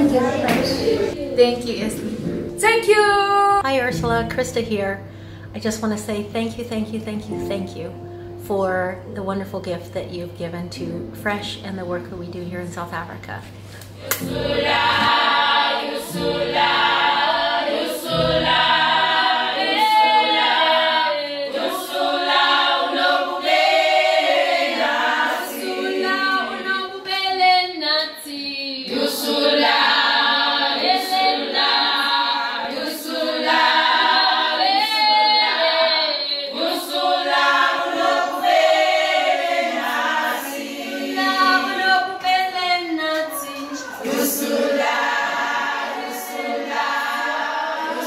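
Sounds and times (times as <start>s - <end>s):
women singing a cappella: 14.0s - 48.0s.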